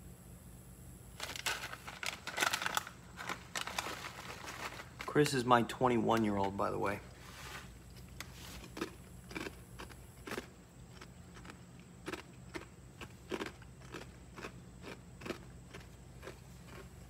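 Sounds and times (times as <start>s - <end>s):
low steady hum: 0.0s - 17.0s
chewing crunchy snacks: 7.8s - 17.0s.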